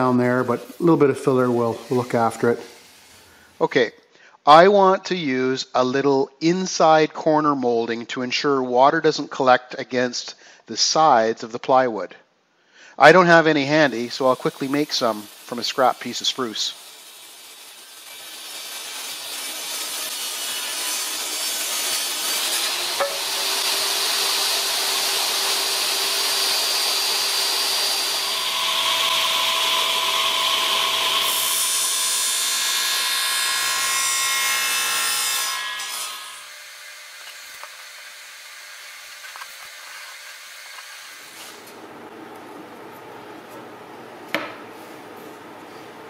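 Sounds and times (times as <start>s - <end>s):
radial arm saw cutting: 0.0s - 3.6s, 13.7s - 41.8s
table saw ripping a board: 13.7s - 41.8s.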